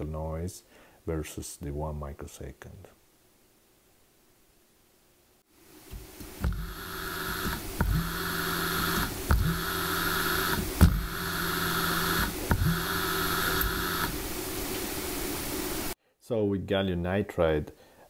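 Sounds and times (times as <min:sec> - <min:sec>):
servo motor hum and whine: 0:05.9 - 0:16.0
sharp clicks: 0:06.2 - 0:14.2.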